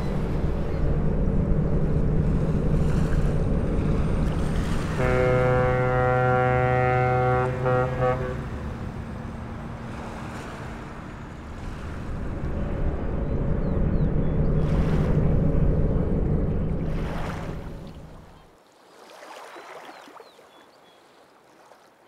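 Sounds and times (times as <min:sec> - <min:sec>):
harbour water washing: 0:00.0 - 0:22.0
ship's horn blast: 0:02.8 - 0:13.9.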